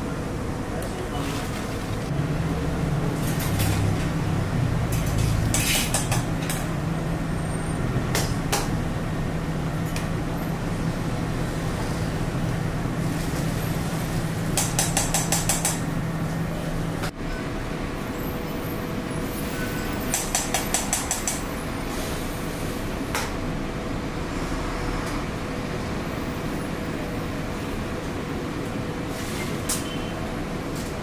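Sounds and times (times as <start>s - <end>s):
kitchen noise: 4.8s - 6.7s.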